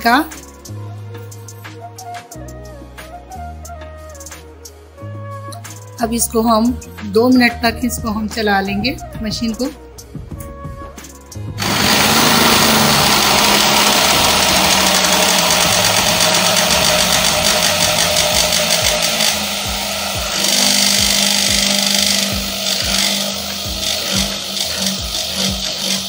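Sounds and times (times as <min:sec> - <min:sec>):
electric blender whirring: 0:11.6 - 0:26.0.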